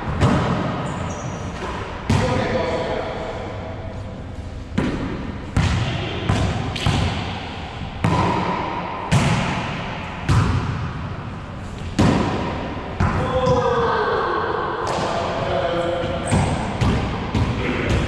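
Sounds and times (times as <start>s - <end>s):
volleyball smacks echoing: 4.7s - 11.0s, 11.8s - 13.3s.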